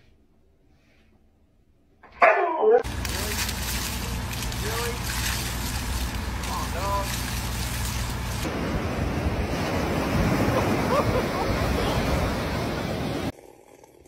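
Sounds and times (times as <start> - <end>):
running water: 2.8 - 8.6
waves breaking on beach: 2.8 - 13.3.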